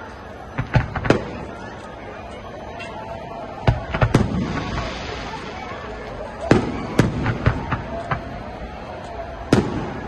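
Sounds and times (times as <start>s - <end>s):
small firework cracks: 0.4s - 2.0s, 3.6s - 10.0s.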